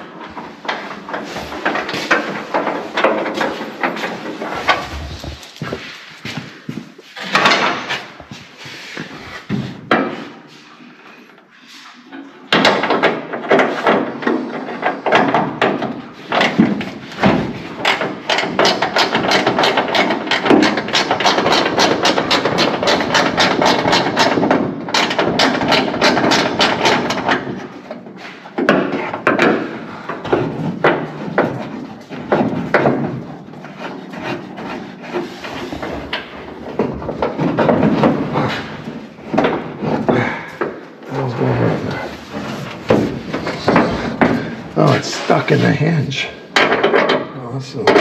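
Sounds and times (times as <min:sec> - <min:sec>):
scattered knocks: 0:12.5 - 0:28.0, 0:28.6 - 0:40.9, 0:41.7 - 0:48.0.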